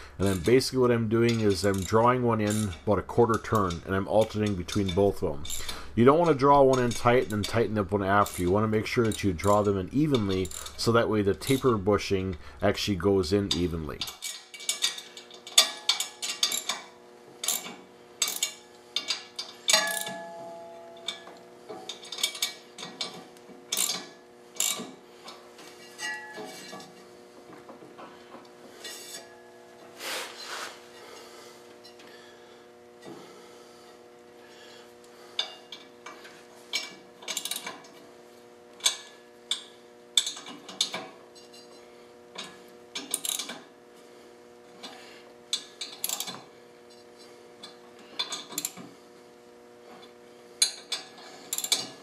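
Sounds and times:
steady hum: 0.0s - 14.1s, 14.9s - 51.9s
ratchet clicking: 9.0s - 11.8s
metal clinks: 18.3s - 22.5s.

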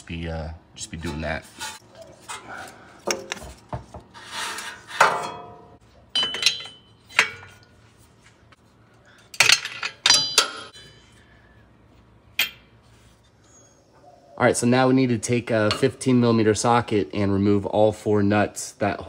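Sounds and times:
wrench clinking on metal: 6.1s - 7.4s, 9.3s - 11.2s.

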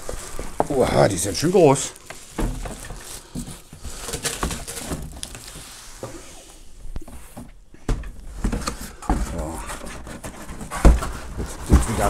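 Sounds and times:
plastic bag crinkling: 0.0s - 5.6s
cardboard box scraping: 8.3s - 12.0s.

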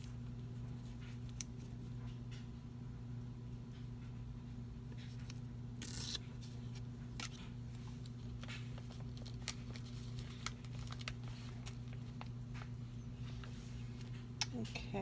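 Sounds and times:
steady low hum: 0.0s - 15.0s
tape tearing: 5.2s - 7.5s.

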